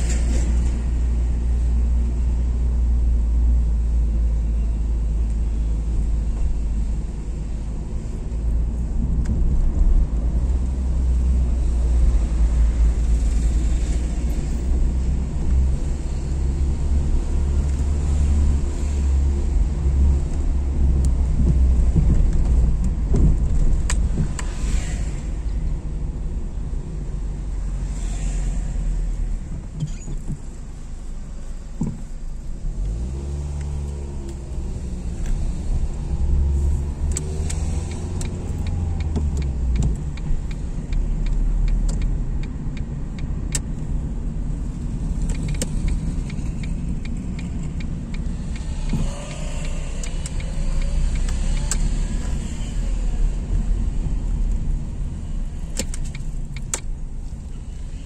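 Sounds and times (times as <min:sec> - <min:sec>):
car engine accelerating: 0:31.9 - 0:57.0
sharp ticks: 0:37.0 - 0:43.8, 0:45.1 - 0:51.9.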